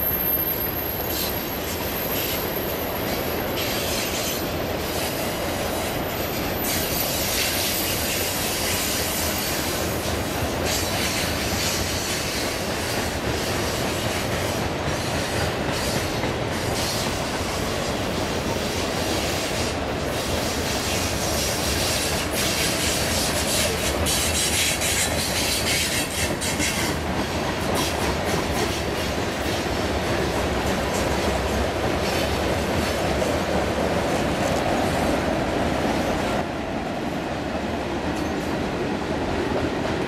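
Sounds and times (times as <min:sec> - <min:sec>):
high wheel squeal: 0:00.0 - 0:04.5
train wheels rumbling on rail: 0:00.0 - 0:40.0.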